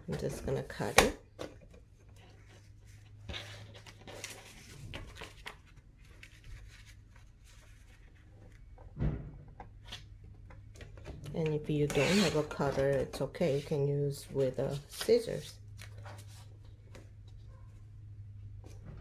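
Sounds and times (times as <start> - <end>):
paper being handled: 2.4 - 8.7
loud thump: 9.0 - 9.4
paper trimmer blade scraping: 11.8 - 13.7.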